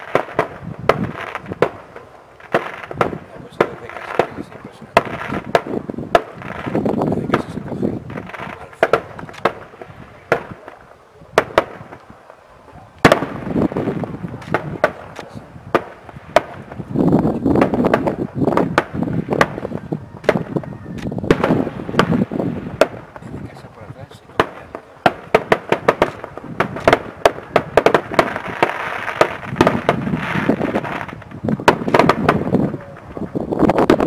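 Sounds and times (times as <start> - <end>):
fireworks bangs: 0.0 - 34.0.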